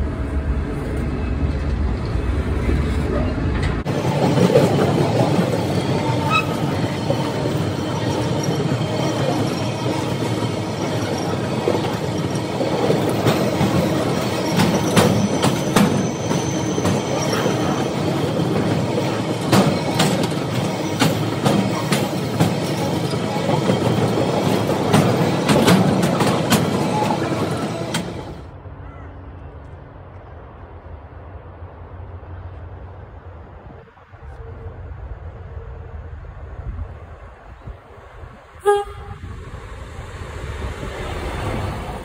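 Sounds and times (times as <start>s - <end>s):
train wheels rumbling on rail: 0.0s - 28.6s, 29.3s - 42.0s
wheel squeal: 4.0s - 28.3s.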